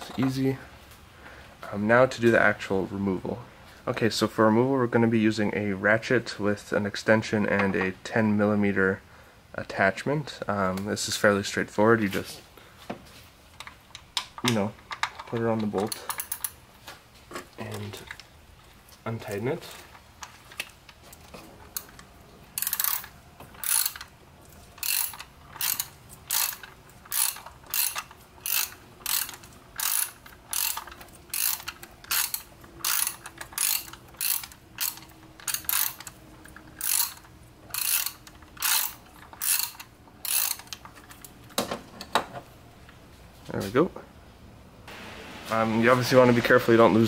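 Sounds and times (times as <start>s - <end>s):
ratchet pawl clicking: 22.6s - 24.1s, 24.8s - 36.2s, 36.8s - 40.9s.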